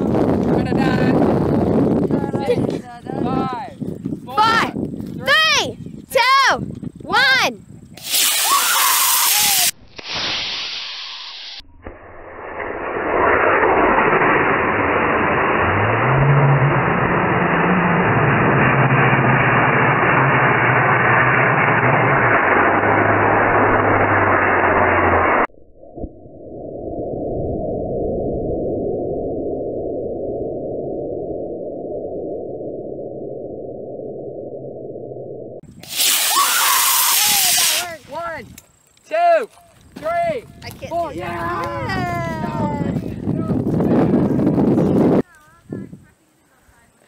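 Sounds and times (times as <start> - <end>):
low rising tone: 9.8 - 35.7
deep steady rushing noise: 10.7 - 35.8.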